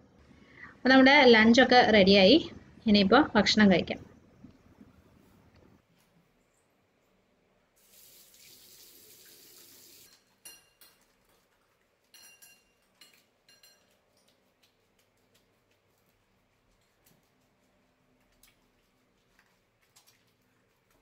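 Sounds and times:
soapy hands rubbing: 12.8 - 21.0.

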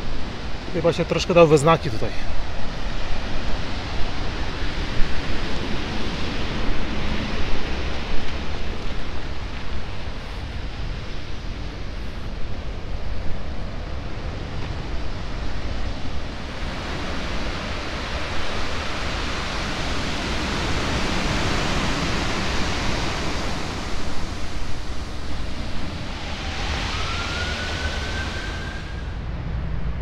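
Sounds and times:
surf breaking on shore: 13.7 - 29.2
high rising tone: 25.6 - 29.4.

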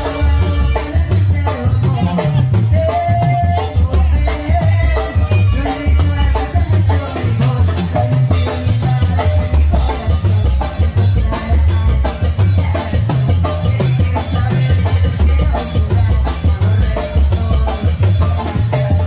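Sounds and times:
brass band music: 0.0 - 10.3
heavy low drum beat: 0.0 - 19.0.

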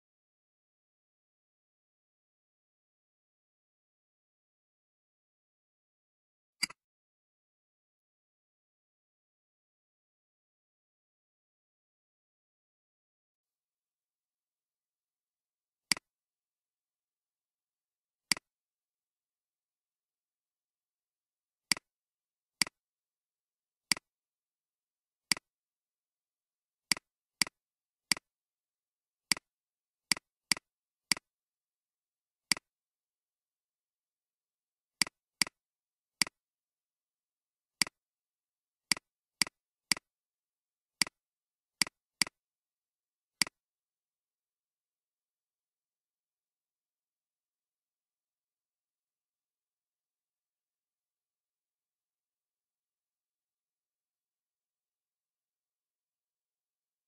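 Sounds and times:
computer mouse clicks: 6.6 - 6.8.

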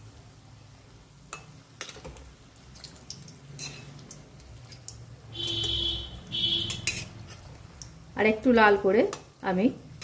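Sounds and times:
food deep-frying in oil: 0.0 - 10.0
metal spatula tapping a pan: 6.5 - 7.2.

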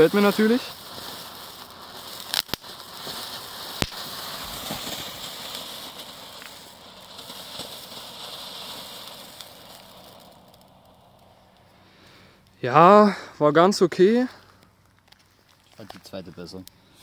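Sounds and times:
sharp crack: 0.0 - 12.6
firework fountain hissing sparks: 0.0 - 13.2.

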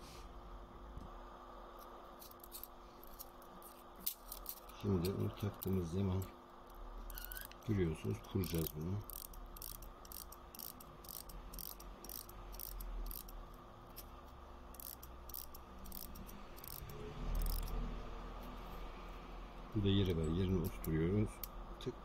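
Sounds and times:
low steady hum: 0.0 - 22.0
wind-up clock clicking: 14.8 - 17.7.

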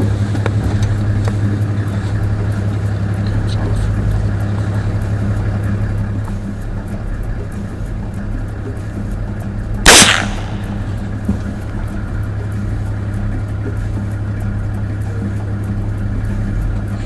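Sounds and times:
low hum: 0.0 - 17.0
rifle shot: 9.9 - 11.0.

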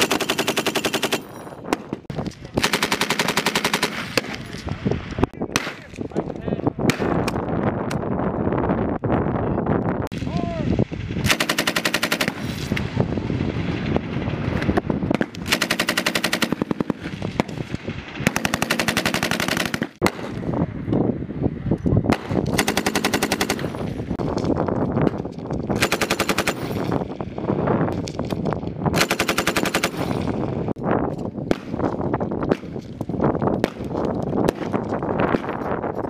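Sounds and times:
machine gun bursts: 11.3 - 12.4, 15.5 - 16.8, 18.3 - 19.9, 22.6 - 23.7, 25.8 - 26.8, 29.0 - 30.2.

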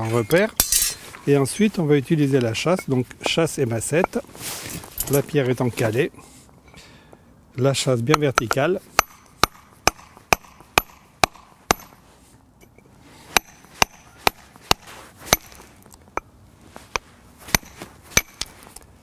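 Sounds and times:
hammer striking chisel on stone: 8.1 - 12.0, 13.4 - 15.6, 16.9 - 18.5.

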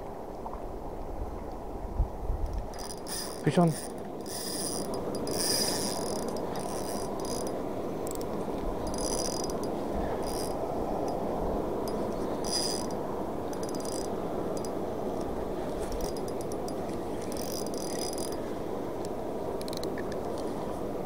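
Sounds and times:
fishing reel gears whirring: 2.6 - 18.4, 19.6 - 19.9.

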